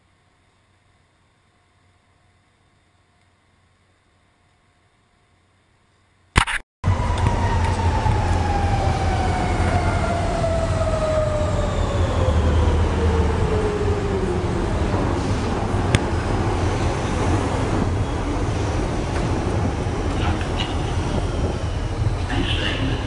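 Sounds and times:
train rumble: 0:06.8 - 0:23.0.

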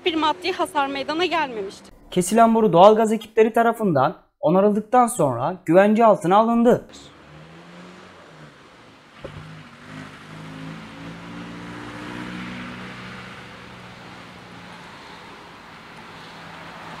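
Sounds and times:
road traffic passing: 0:00.0 - 0:02.8, 0:06.9 - 0:17.0.

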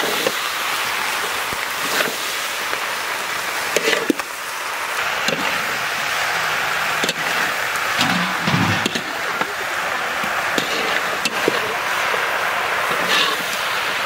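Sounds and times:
vegetables sizzling in a pan: 0:00.0 - 0:07.9, 0:08.8 - 0:14.0
metal spatula scraping a pan: 0:08.0 - 0:09.1.

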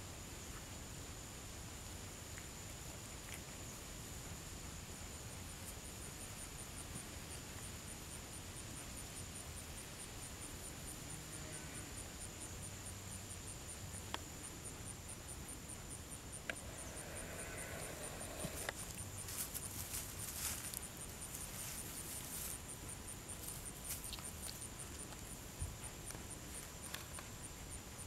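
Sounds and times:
insects chirping: 0:00.1 - 0:28.0
dry straw rustling: 0:18.3 - 0:22.7, 0:23.4 - 0:24.6.

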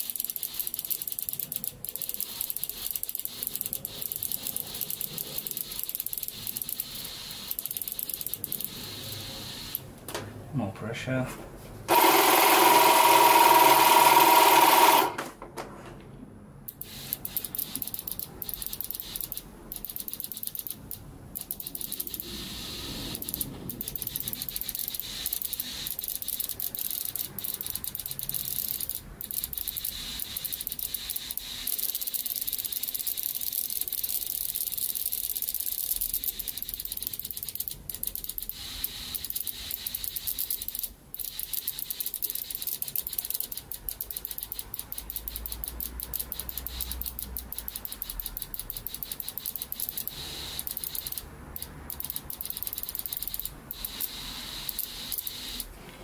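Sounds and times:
fuel injectors clicking: 0:00.0 - 0:09.9, 0:16.7 - 0:55.7
fine spray hiss: 0:06.3 - 0:07.8, 0:22.2 - 0:23.4, 0:38.5 - 0:40.3, 0:53.7 - 0:56.0
air compressor running: 0:11.9 - 0:15.2.

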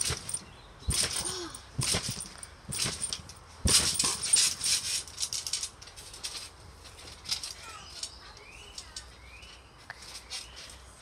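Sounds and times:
thump on trampoline mat: 0:01.8 - 0:04.4.

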